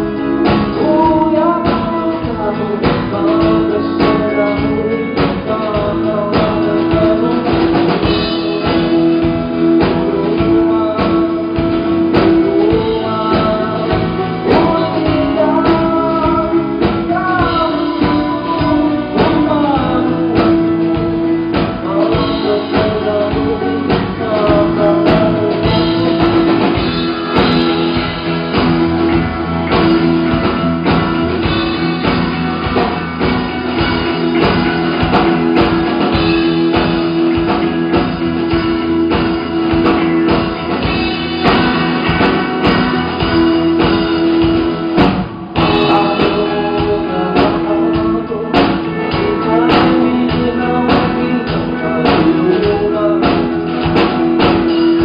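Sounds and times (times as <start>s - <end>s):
man singing into a microphone: 0.0s - 28.0s, 45.5s - 55.0s
strummed acoustic guitar: 0.0s - 55.0s.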